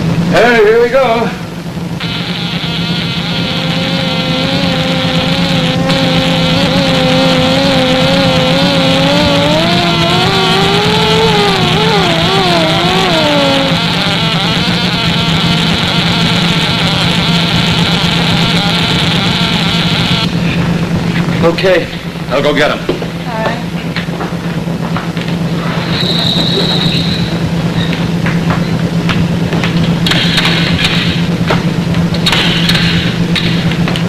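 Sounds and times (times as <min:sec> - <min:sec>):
loud electric hum and hiss: 0:00.0 - 0:34.0
wavering warbling tone: 0:02.0 - 0:23.8, 0:25.4 - 0:29.0.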